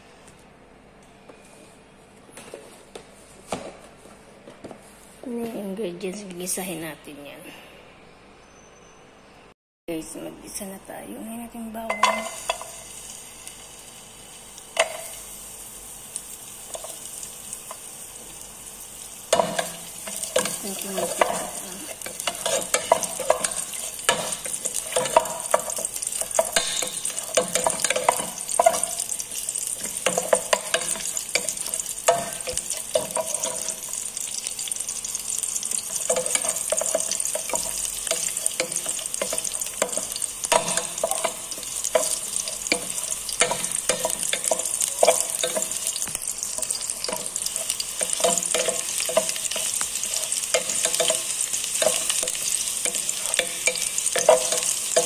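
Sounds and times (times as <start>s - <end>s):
garlic sizzling in hot oil: 11.9s - 55.0s.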